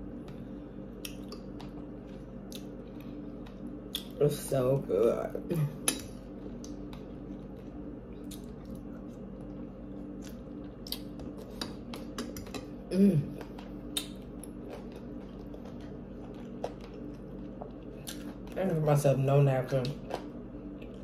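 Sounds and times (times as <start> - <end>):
steady low hum: 0.0 - 21.0
chewing mouth noises: 6.3 - 12.7, 13.3 - 18.6.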